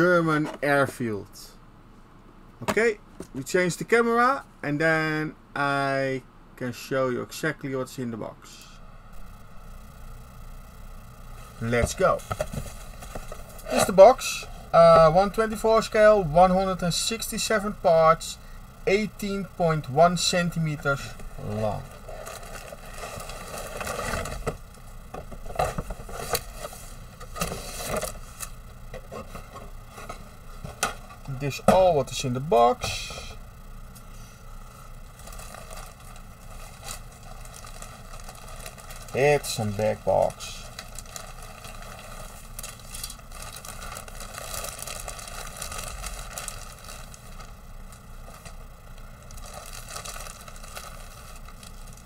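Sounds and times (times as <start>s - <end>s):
plastic bag crinkling: 20.4s - 24.8s, 35.0s - 52.0s.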